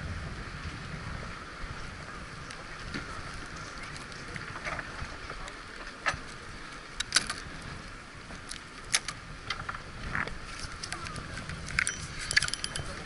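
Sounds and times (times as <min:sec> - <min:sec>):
wind and sea hiss: 0:00.0 - 0:13.0.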